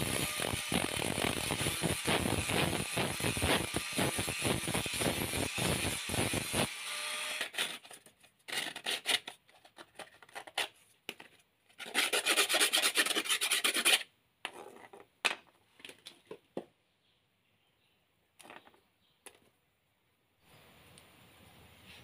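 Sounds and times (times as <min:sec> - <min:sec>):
angle grinder winding down: 0:00.0 - 0:07.5
coconut shell rasping on abrasive disc: 0:00.0 - 0:09.4.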